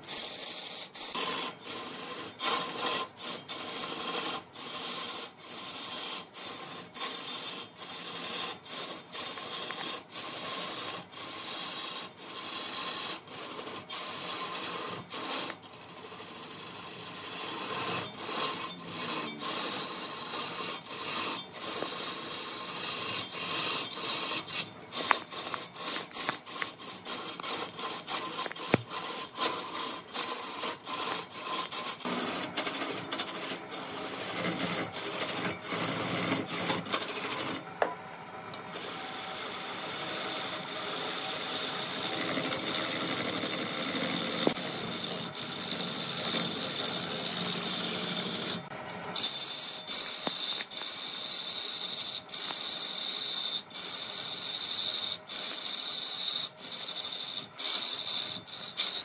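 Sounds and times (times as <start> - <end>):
lathe tool rasping on wood: 0.0 - 37.7, 38.5 - 59.0.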